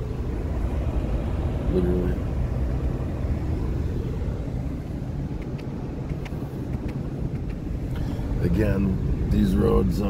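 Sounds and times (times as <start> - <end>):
truck engine and tyres rumbling: 0.0 - 10.0
faint clicks: 5.4 - 8.0.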